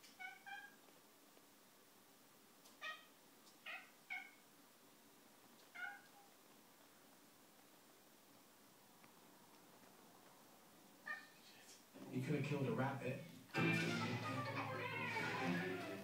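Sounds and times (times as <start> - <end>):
cat meowing: 0.0 - 0.9, 2.7 - 4.4, 5.6 - 6.3, 11.0 - 11.4, 14.2 - 16.0.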